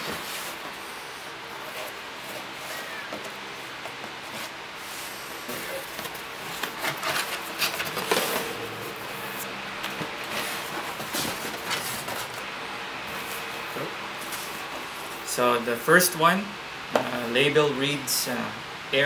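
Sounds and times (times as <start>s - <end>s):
cardboard flaps scraping and rustling: 0.0s - 0.9s, 1.5s - 12.5s, 13.1s - 15.3s
packing tape being slit: 5.4s - 8.6s.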